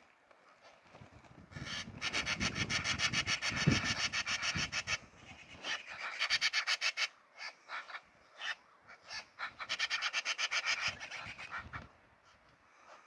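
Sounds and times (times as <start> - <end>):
magpies chattering: 1.6 - 11.8.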